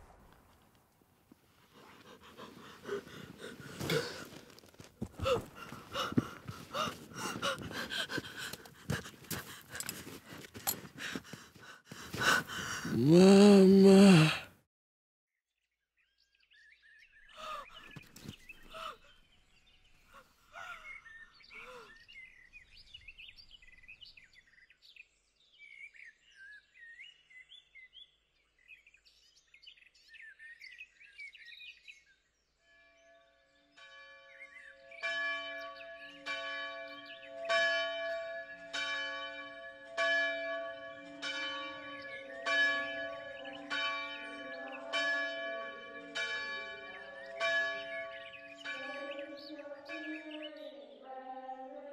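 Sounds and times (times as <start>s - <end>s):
church bell ringing: 32.8s - 50.4s.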